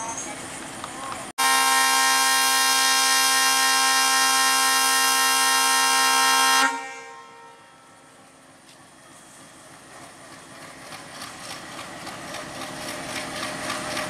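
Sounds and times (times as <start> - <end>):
locomotive air horn blast: 1.4 - 8.0.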